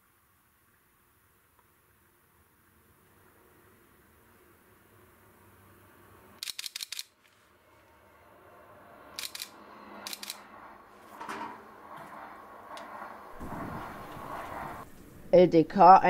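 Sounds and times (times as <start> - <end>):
passing train: 3.2 - 15.8
camera shutter clicks: 6.4 - 7.2, 9.2 - 9.5, 10.1 - 10.4.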